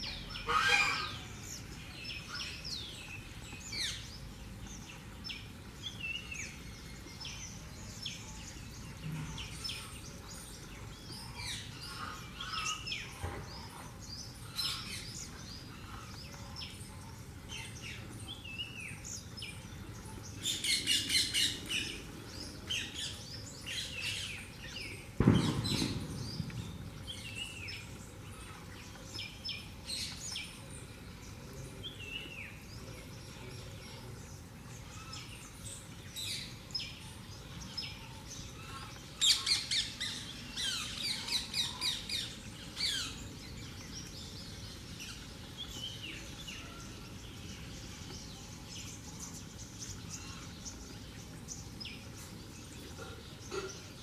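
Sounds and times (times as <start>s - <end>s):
loud knock: 25.2s - 26.4s.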